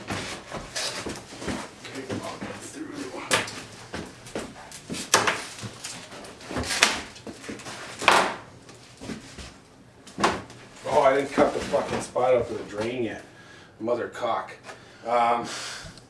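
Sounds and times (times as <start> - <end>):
bathtub scraping: 10.2 - 12.2.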